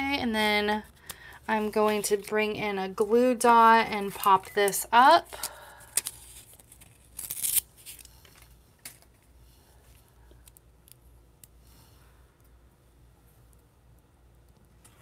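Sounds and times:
paper handling: 5.4 - 9.3.

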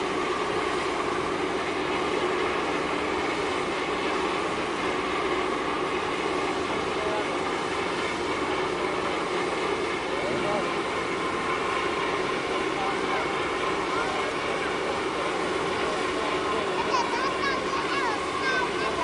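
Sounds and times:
ship diesel engines droning: 0.0 - 19.0
water rushing noise: 0.0 - 19.0.

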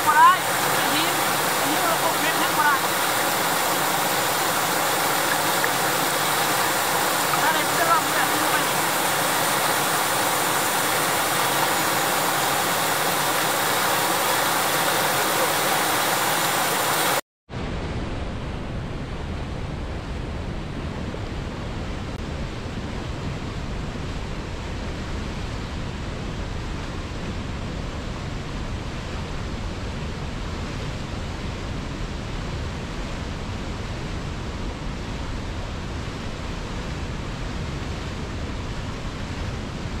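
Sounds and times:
fast-flowing river water: 0.0 - 17.2
deep rush of rapids: 0.0 - 17.7.

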